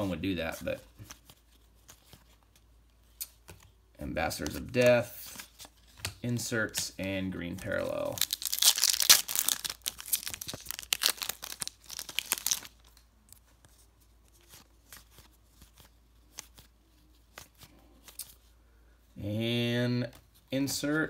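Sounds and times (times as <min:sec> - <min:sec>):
cards ticking as flipped: 0:07.6 - 0:13.8
foil wrapper tearing and crinkling: 0:08.0 - 0:12.9.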